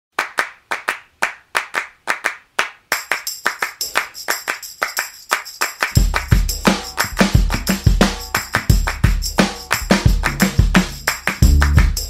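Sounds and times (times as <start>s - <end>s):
rhythmic handclaps: 0.2s - 12.0s
high jingling percussion: 2.9s - 12.0s.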